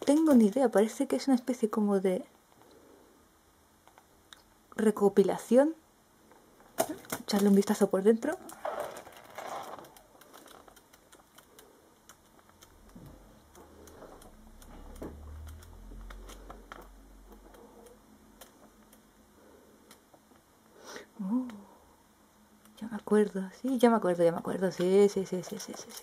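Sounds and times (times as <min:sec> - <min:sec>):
comic book pages turning: 0:08.4 - 0:16.8.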